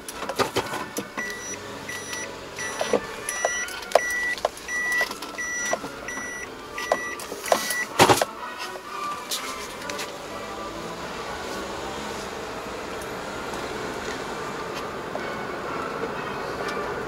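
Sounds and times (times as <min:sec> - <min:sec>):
electronic warning beeper: 0:01.2 - 0:08.0.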